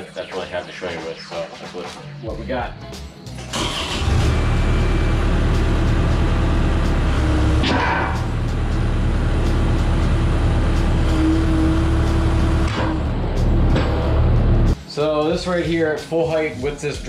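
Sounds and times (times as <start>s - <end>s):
hydraulic whine: 3.5s - 14.7s
diesel engine running: 3.5s - 14.8s.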